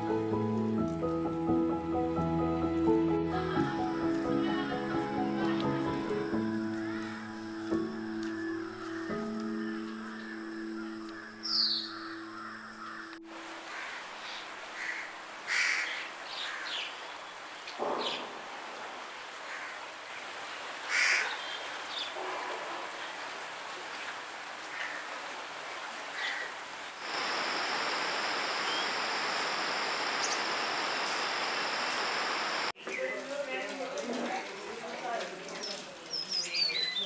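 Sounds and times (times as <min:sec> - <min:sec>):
music: 0:00.0 - 0:13.3
crows cawing: 0:06.8 - 0:07.7, 0:12.0 - 0:16.9, 0:19.4 - 0:19.9, 0:20.9 - 0:21.5, 0:24.6 - 0:25.2, 0:26.1 - 0:26.6
hiss with thin high tone: 0:27.0 - 0:32.7.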